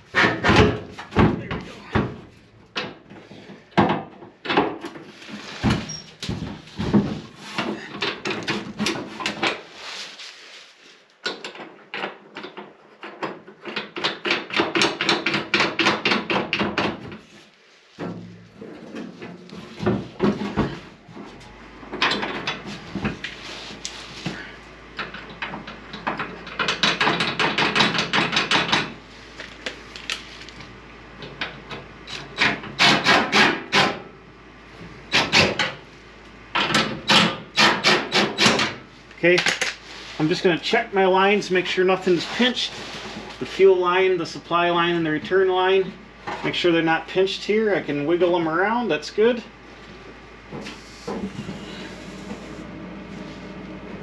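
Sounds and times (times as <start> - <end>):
metallic clattering and knocking: 18.0 - 23.2.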